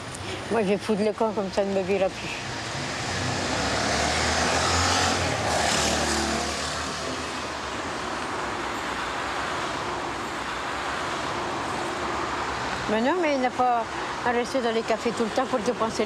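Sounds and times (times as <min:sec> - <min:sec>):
traffic noise: 0:00.0 - 0:16.0
vehicle engine passing: 0:02.5 - 0:07.7.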